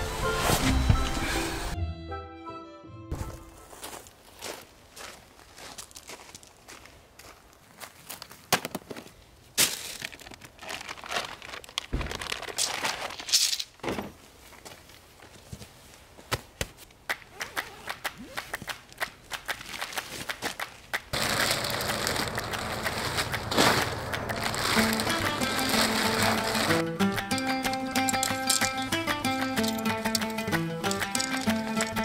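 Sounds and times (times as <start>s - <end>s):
plastic sheet crinkling: 9.7s - 13.7s, 21.1s - 29.0s, 30.8s - 32.0s
knocks clicks and rustles of gear: 22.1s - 32.0s.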